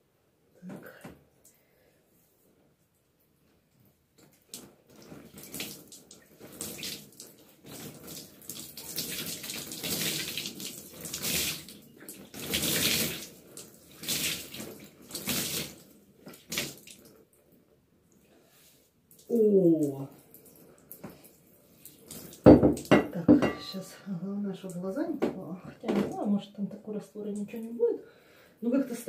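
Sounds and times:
water pouring into a bathtub: 4.1 - 17.5, 19.0 - 22.9.

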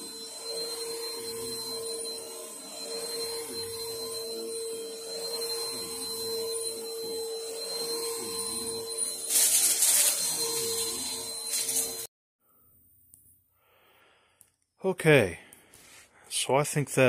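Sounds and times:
vacuum cleaner motor whine: 0.0 - 12.1.

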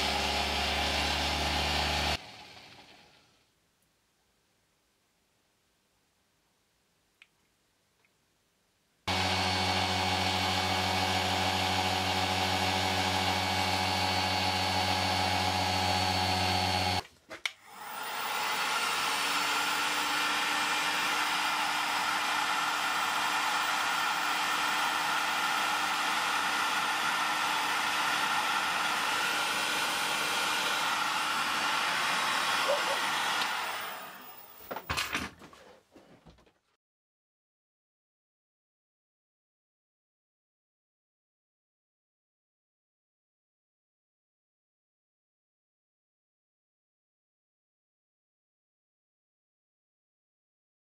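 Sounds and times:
rotary tool drilling stone: 0.0 - 3.1, 9.1 - 17.0, 17.6 - 34.8.

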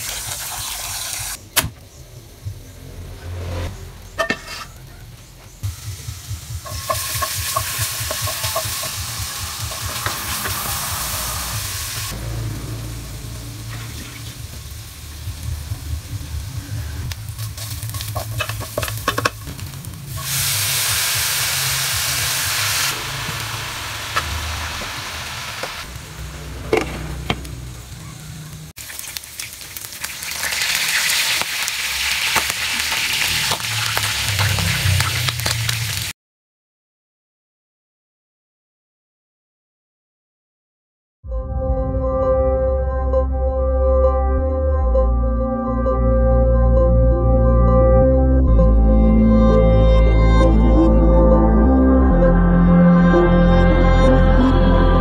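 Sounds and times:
food sizzling in a wok: 0.0 - 1.4, 5.6 - 36.1
meat frying in bubbling oil: 0.0 - 1.4, 5.7 - 12.2, 13.5 - 36.1.

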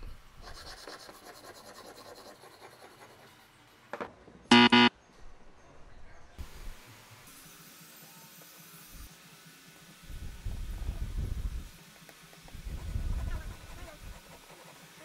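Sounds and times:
wrong answer buzzer: 4.5 - 4.9.

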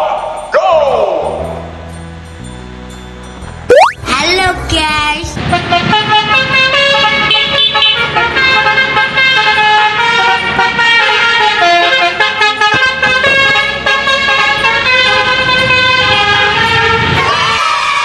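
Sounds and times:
multi-tone truck horn playing tune: 5.4 - 17.2.

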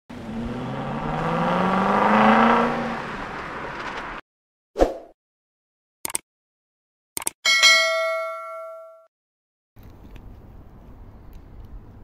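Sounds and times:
car engine revving: 0.1 - 4.2.

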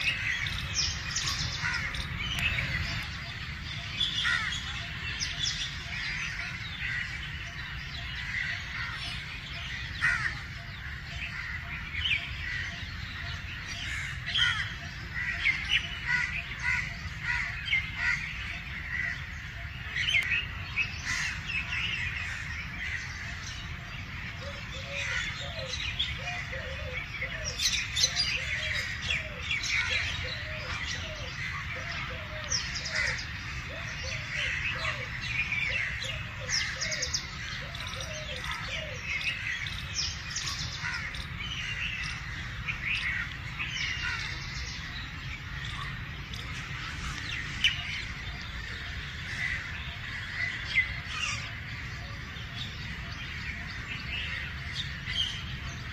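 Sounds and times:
birds chirping: 0.0 - 55.9
dove cooing: 24.4 - 27.6.

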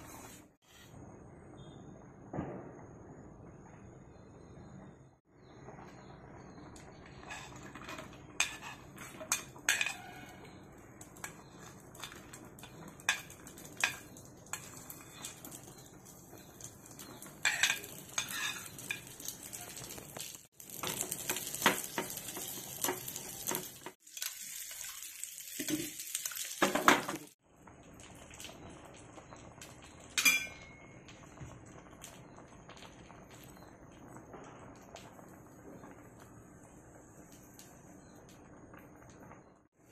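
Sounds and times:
ghee sizzling: 0.0 - 1.0, 4.2 - 39.9
metal spoon clinking on pan: 7.3 - 10.2, 11.2 - 15.4, 17.4 - 19.2, 30.2 - 31.0.

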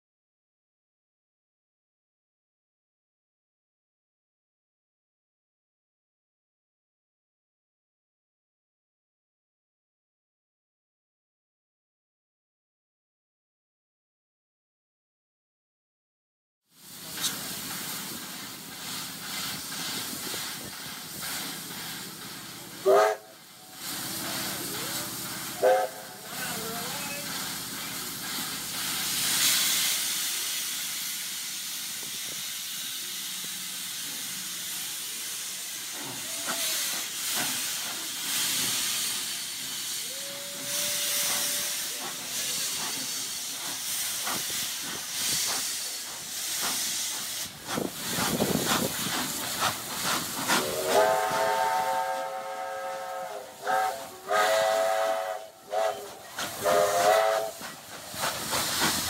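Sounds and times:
steam hissing: 16.7 - 59.0
steam locomotives running: 16.7 - 59.0
steam whistle blasts: 22.8 - 23.8, 25.6 - 26.2, 40.0 - 42.2, 50.5 - 57.6.

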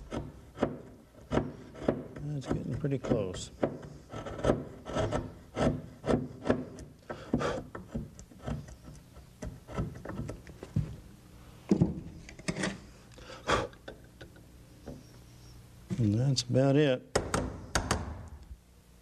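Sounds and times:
chisel scraping wood: 0.0 - 10.8, 12.2 - 12.8.

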